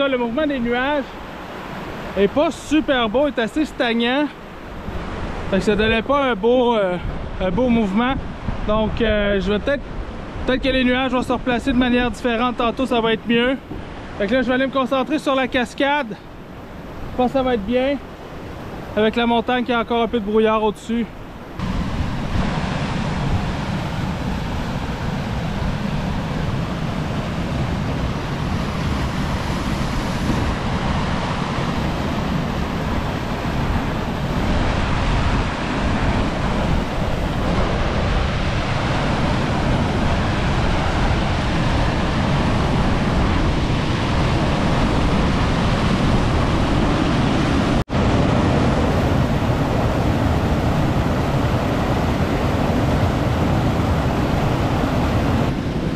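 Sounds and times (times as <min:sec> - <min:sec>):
water rushing over boulders: 0:21.5 - 0:55.9.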